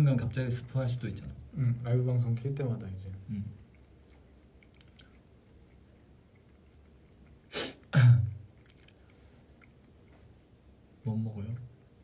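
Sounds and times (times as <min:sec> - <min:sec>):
throaty vocal burst: 0:07.5 - 0:08.4.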